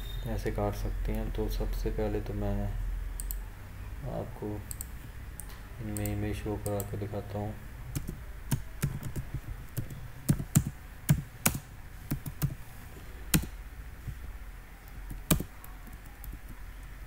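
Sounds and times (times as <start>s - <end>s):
computer keyboard typing: 3.2s - 3.4s, 4.6s - 7.0s, 7.9s - 12.6s, 13.3s - 13.5s, 14.8s - 16.6s.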